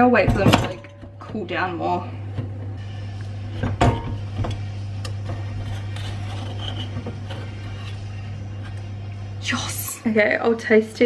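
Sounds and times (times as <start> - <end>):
steady low hum: 0.0 - 11.0
knife scraping muffin pan: 5.2 - 8.7.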